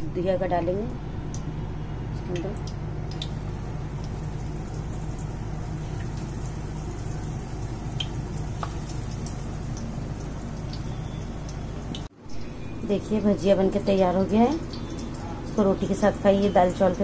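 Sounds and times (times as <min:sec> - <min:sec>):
oil popping and crackling: 0:02.3 - 0:12.1, 0:13.7 - 0:17.0
food sizzling in hot oil: 0:03.0 - 0:17.0.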